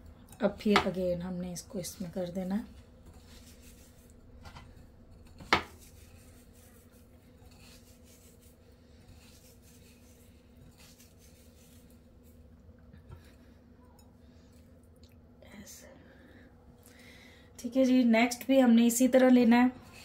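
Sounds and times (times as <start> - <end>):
low steady hum: 0.0 - 20.0
breadcrumbs rustling: 1.7 - 12.6.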